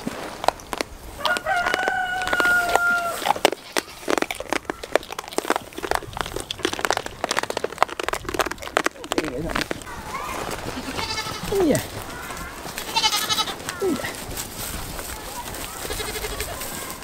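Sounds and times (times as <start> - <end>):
rustles and clicks in straw: 0.0 - 17.0
rooster crowing: 1.2 - 3.3.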